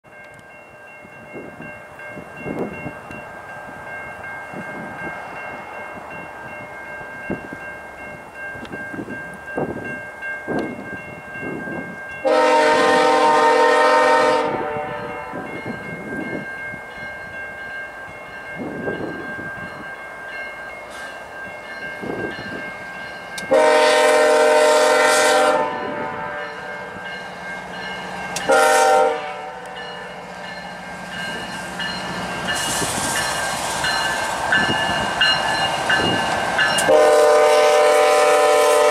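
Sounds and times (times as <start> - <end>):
locomotive chime horn blasts: 12.2 - 15.6, 23.4 - 27.2, 27.8 - 30.3, 36.6 - 38.9.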